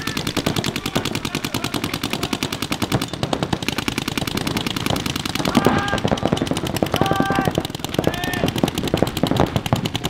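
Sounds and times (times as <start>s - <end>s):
paintball guns firing rapidly: 0.0s - 10.0s
loud shouts: 5.4s - 6.2s, 6.9s - 8.6s.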